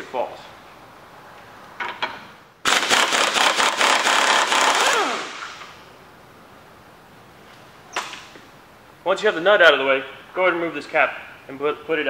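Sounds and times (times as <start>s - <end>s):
impact wrench hammering: 2.7s - 5.7s.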